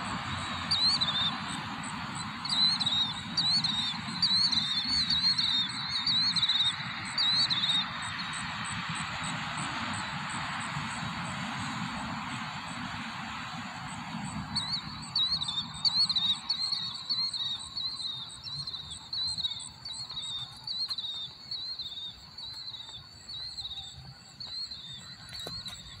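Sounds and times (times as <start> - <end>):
birds screeching: 0.0 - 8.8, 14.4 - 26.0.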